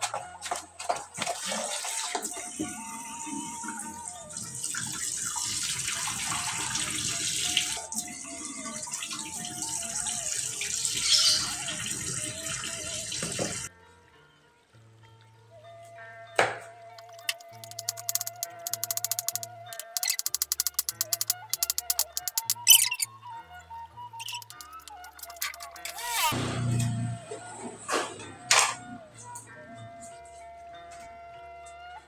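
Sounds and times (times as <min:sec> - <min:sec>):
background music simple melody: 0:00.0 - 0:32.0
tap water running into colander: 0:01.2 - 0:13.7, 0:17.0 - 0:22.6.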